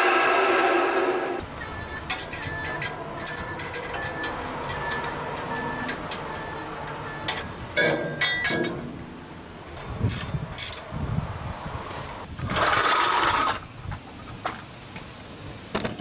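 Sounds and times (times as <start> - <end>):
metal pipe clicks and clinks: 2.1 - 8.8.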